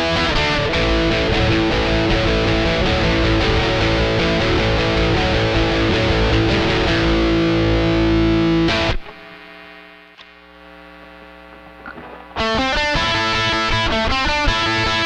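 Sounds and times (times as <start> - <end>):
distorted electric guitar riff: 0.0 - 15.0
steady hum: 6.1 - 12.9
click: 10.2 - 10.4.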